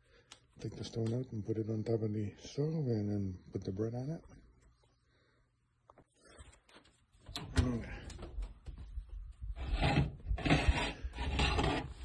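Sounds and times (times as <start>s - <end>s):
baking stone scraping: 9.6s - 12.0s.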